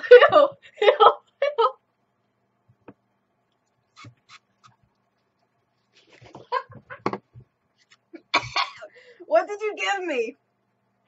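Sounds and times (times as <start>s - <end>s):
woman laughing: 0.0s - 1.8s, 6.0s - 7.2s.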